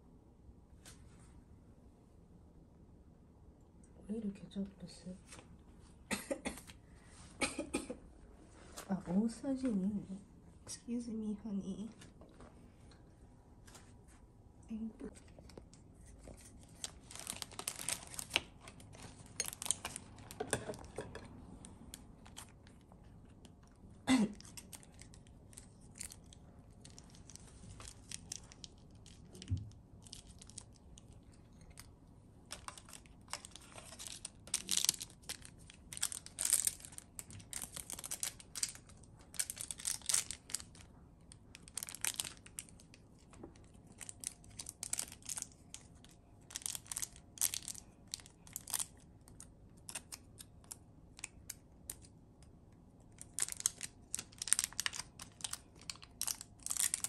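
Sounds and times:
plastic packaging crinkling and tearing: 15.1 - 57.0.

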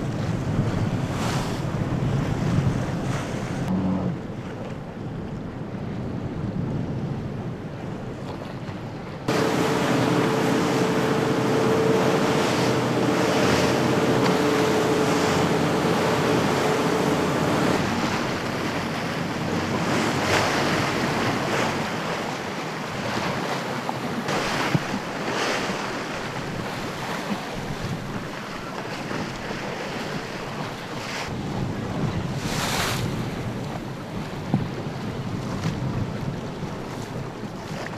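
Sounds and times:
waves and spray splashing: 0.0 - 37.9
wind buffeting microphone: 0.0 - 37.9
steady hum: 9.3 - 19.5.

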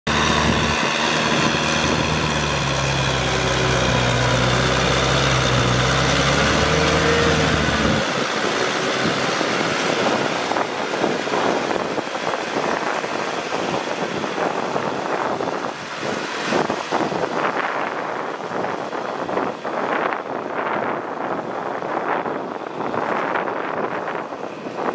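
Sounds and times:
diesel tractor engine running: 0.1 - 19.6
rough gusty rushing noise: 0.1 - 24.9.

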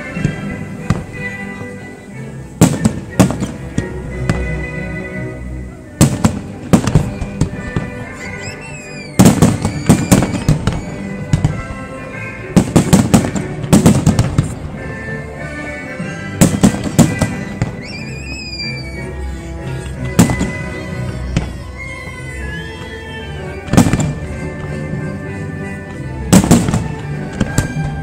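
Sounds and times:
music playing: 0.0 - 28.0
fireworks bangs: 2.6 - 4.6, 6.0 - 14.8, 16.3 - 18.8, 20.1 - 21.7, 23.6 - 24.8, 26.2 - 28.0
firework whistles: 6.0 - 11.8, 16.1 - 19.2, 20.0 - 21.9.

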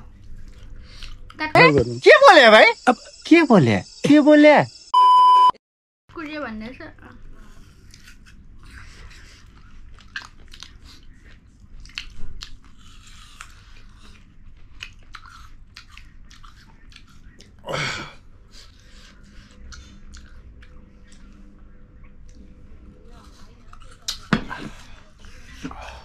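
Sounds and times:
people chewing and biting food: 0.0 - 1.5, 7.3 - 26.0.

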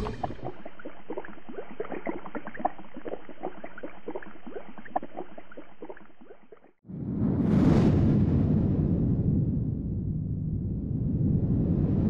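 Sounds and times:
water bubbling and gurgling: 0.0 - 6.8.

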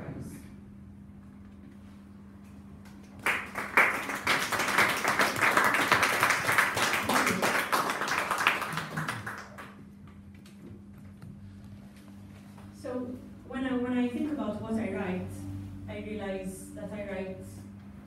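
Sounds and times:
small audience applauding: 2.9 - 9.9.

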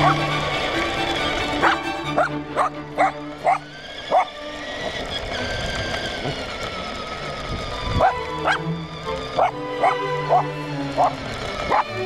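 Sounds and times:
dog barking: 0.0 - 0.2, 1.6 - 4.3, 8.0 - 8.6, 9.4 - 11.1, 11.7 - 11.9
electric motor whining: 0.0 - 12.0
tyres on gravelly asphalt: 0.0 - 12.0.

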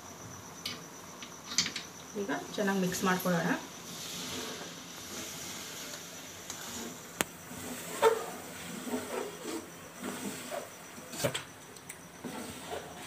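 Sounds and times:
masala sizzling in oil: 1.3 - 11.2
metal spatula scraping: 3.9 - 11.4.

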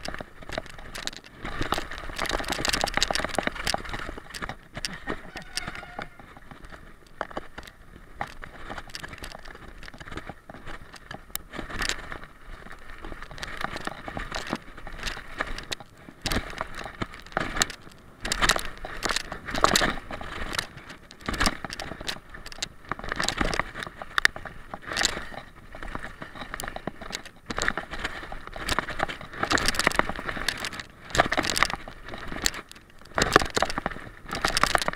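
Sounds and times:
bike clattering and rattling: 0.0 - 34.9
bike tyres on gravel: 0.0 - 34.9.

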